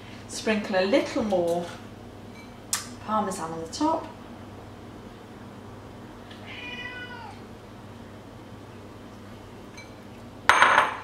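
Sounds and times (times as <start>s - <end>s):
cat meowing: 6.4s - 7.5s.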